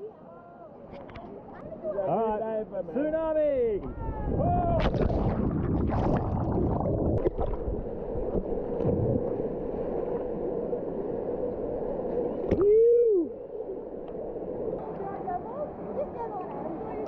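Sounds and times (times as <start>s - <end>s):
person whooping: 12.6s - 13.4s.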